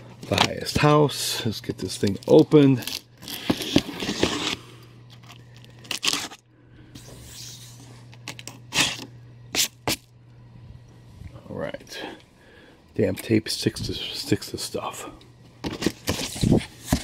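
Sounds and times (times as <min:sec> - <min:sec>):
packing tape ripping off cardboard: 0:02.0 - 0:06.4, 0:07.2 - 0:10.1, 0:15.7 - 0:17.0.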